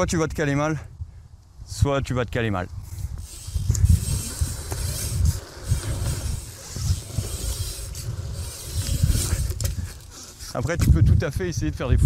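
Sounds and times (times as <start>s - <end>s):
wind buffeting microphone: 0.0s - 12.0s
bike tyres rolling: 2.8s - 10.9s.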